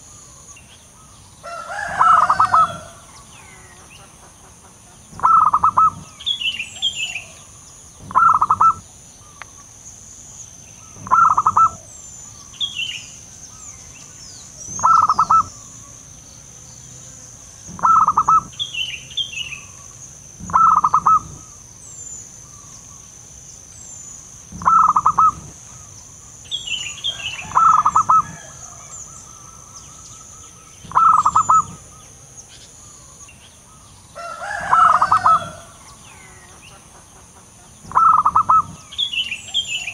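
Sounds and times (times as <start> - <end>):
small birds chirping: 0.0 - 39.9
dove cooing: 1.5 - 3.7, 5.2 - 6.2, 6.8 - 8.8, 10.9 - 11.9, 14.6 - 15.9, 17.7 - 18.6, 20.4 - 21.6, 24.5 - 25.9, 27.1 - 29.7, 30.8 - 32.0, 34.2 - 36.4, 37.9 - 39.9.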